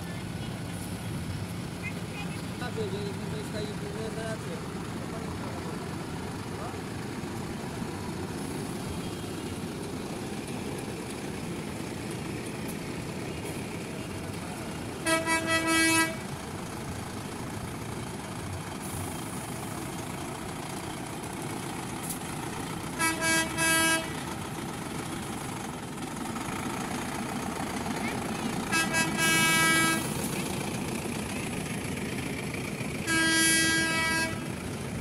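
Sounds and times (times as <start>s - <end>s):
tractor diesel engines: 0.0s - 35.0s
tractor horn toots: 15.0s - 16.2s, 23.0s - 24.2s, 28.7s - 30.2s, 33.0s - 34.5s.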